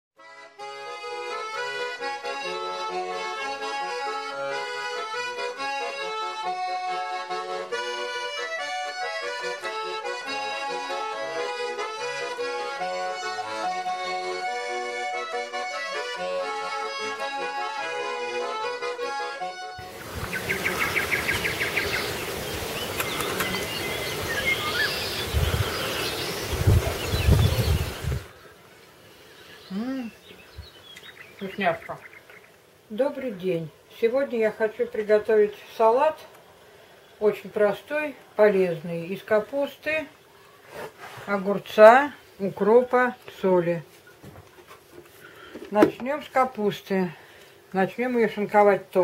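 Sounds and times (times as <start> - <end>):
lively accordion music: 0.2 - 28.4, 32.8 - 36.3, 37.2 - 44.0
birds chirping: 19.8 - 33.8.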